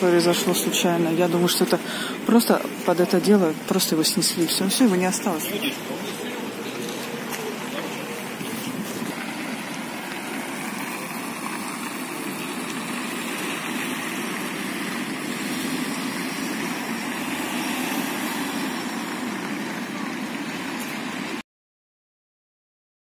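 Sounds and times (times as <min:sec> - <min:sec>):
cars driving past: 0:00.0 - 0:21.4.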